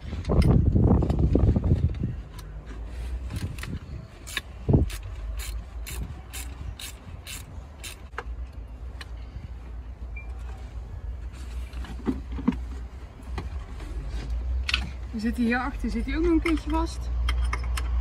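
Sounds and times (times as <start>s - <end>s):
ratchet wrench clicking: 3.3s - 8.2s.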